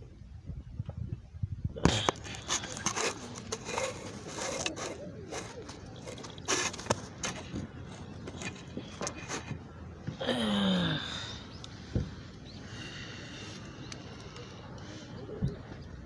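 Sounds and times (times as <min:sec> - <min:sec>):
phone handling clicks and rustles: 0:01.8 - 0:09.6.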